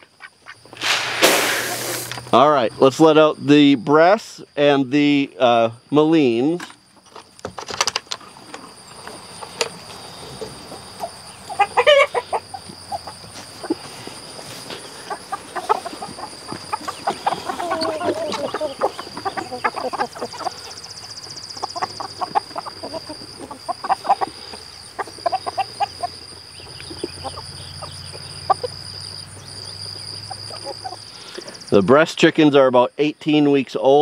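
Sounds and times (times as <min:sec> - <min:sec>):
high-pitched insect drone: 0:00.0 - 0:32.0
chickens clucking: 0:08.2 - 0:31.7
chicken squawk: 0:10.8 - 0:28.8, 0:30.2 - 0:31.1.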